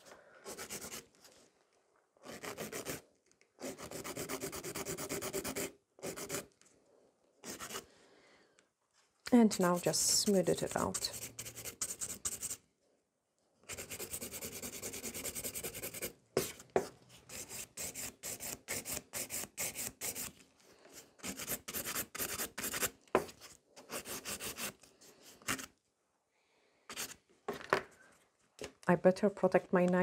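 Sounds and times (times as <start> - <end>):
nail file rasping: 2.2 - 3.0, 3.6 - 6.5, 7.4 - 7.8, 13.7 - 16.5, 21.2 - 22.9.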